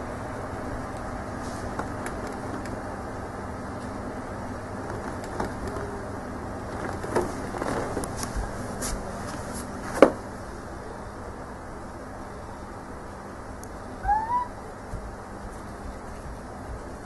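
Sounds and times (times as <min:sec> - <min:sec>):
light taps and rustles: 0:01.4 - 0:02.8, 0:04.8 - 0:06.0.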